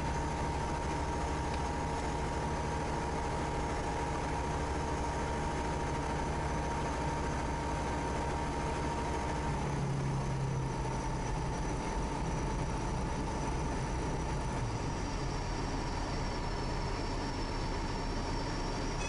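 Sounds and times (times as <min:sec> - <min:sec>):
aircraft engine and propeller: 0:00.0 - 0:19.0.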